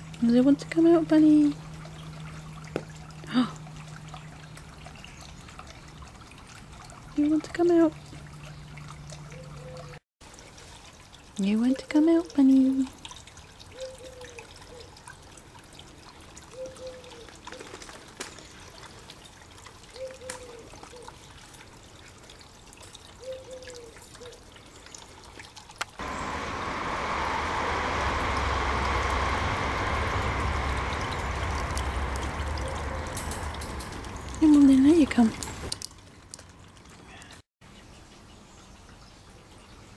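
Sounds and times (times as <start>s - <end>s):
low rumble: 26.0s - 35.7s
rushing noise: 26.0s - 35.7s.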